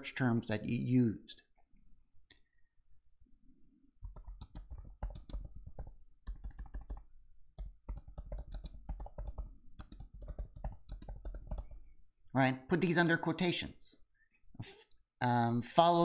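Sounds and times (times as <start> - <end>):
laptop keyboard typing: 4.0 - 11.9.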